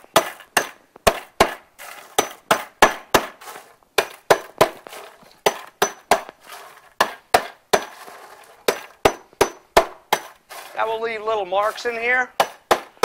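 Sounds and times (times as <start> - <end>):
hammer striking chain on wood: 0.2 - 1.6, 2.2 - 3.4, 4.0 - 6.3, 7.0 - 8.0, 8.7 - 10.4.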